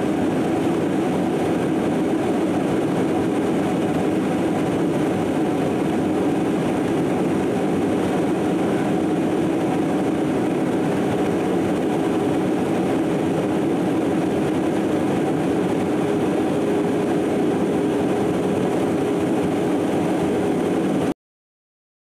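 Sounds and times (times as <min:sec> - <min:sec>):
aircraft engine drone: 0:00.0 - 0:21.1.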